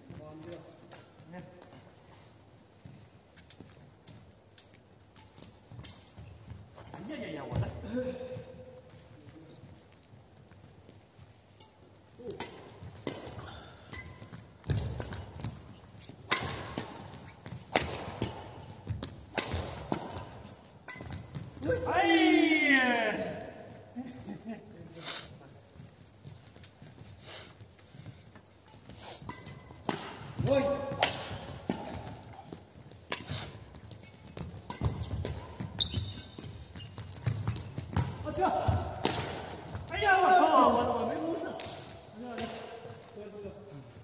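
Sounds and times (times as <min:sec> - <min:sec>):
footsteps on court: 0:00.0 - 0:24.5, 0:25.4 - 0:42.2
racket hitting shuttlecock: 0:11.6 - 0:21.9, 0:28.3 - 0:43.1.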